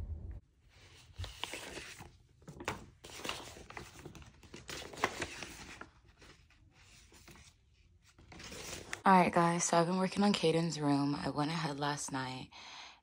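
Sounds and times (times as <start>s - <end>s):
plastic sheets crinkling: 1.0s - 9.0s.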